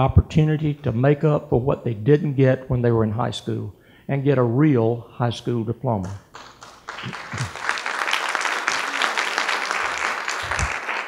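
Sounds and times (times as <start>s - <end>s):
audience applauding: 6.3s - 11.0s.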